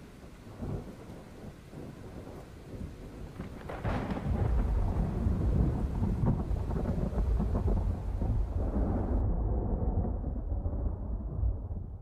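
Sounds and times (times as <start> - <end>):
rain: 0.0 - 12.0
rolling thunder: 0.5 - 12.0
sharp thunderclap: 0.6 - 12.0.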